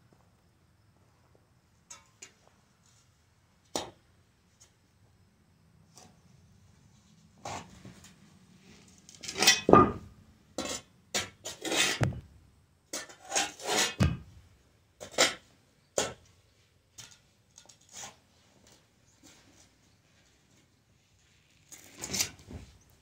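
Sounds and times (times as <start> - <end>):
shovel scraping into dirt: 10.6 - 12.1, 12.9 - 14.0, 21.8 - 22.7.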